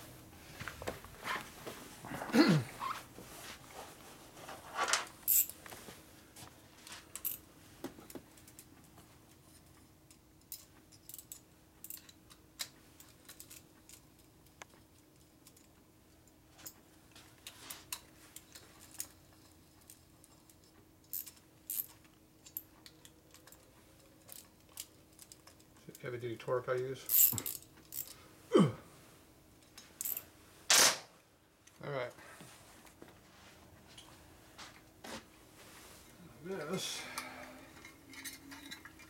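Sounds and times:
faint steady hum: 0:00.0 - 0:39.0
metal parts clattering: 0:37.7 - 0:39.0.

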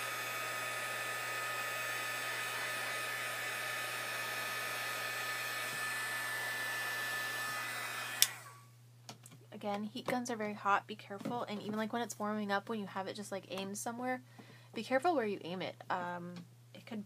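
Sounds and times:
heat gun blowing air: 0:00.0 - 0:08.6.

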